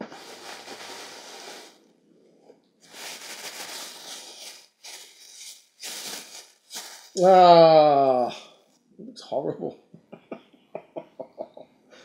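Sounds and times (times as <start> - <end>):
plastic bag crinkling: 0.0 - 1.8, 2.8 - 7.2.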